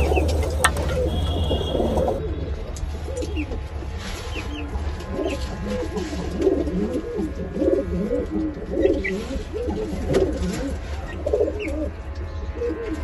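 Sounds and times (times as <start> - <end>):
pigeons cooing: 0.0 - 2.2, 4.3 - 12.0.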